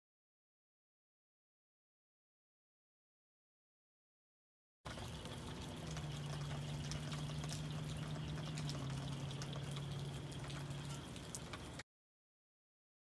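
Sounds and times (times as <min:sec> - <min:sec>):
low hum: 0:04.9 - 0:11.8
rain dripping and pattering: 0:04.9 - 0:11.8.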